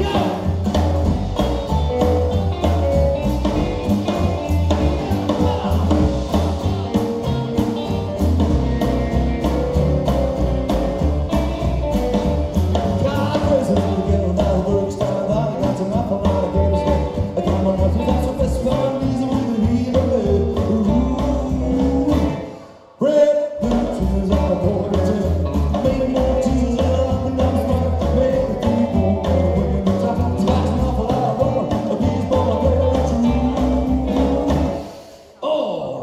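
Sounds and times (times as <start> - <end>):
man singing: 0.0 - 0.8, 2.6 - 7.9, 12.7 - 34.8, 35.4 - 36.0
rockabilly band playing live: 0.0 - 22.7, 23.5 - 35.3.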